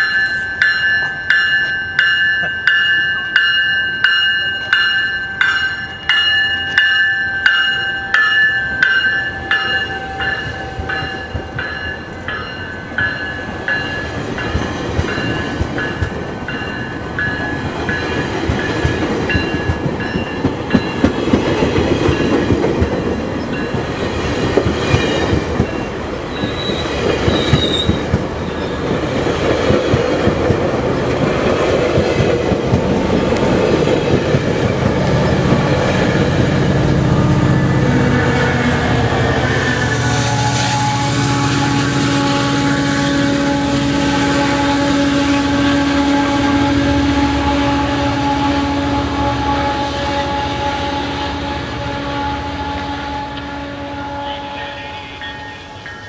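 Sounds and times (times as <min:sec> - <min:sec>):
train bell ringing: 0:00.0 - 0:24.1, 0:24.8 - 0:28.8, 0:39.3 - 0:45.7, 0:54.2 - 0:56.0
train wheels rumbling and clattering: 0:00.0 - 0:48.2.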